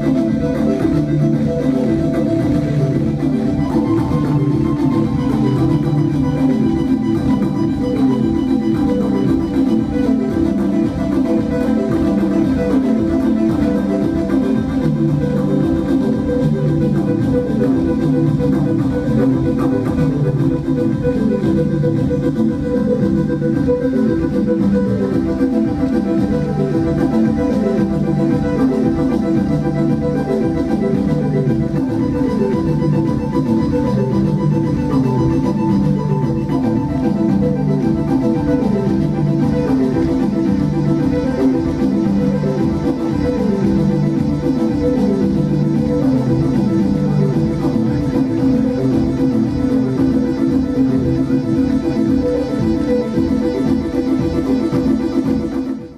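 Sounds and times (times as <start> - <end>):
live synthesizer music: 0.0 - 55.9.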